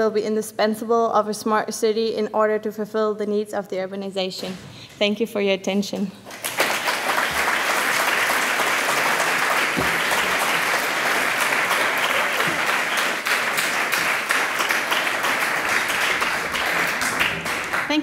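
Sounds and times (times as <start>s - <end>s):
audience clapping: 6.3s - 18.0s.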